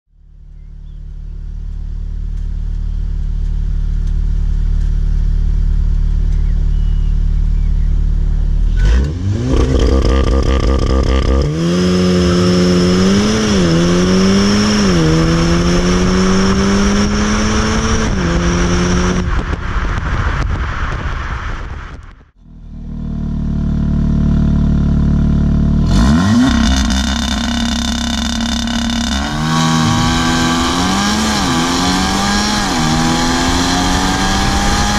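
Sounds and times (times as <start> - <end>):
car engine accelerating through exhaust: 0.2 - 20.8, 22.4 - 34.9.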